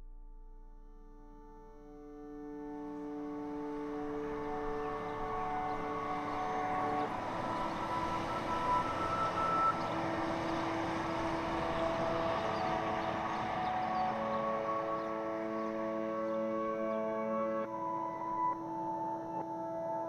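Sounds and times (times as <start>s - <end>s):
ambient music: 0.0s - 20.0s
road traffic rushing: 3.4s - 17.1s.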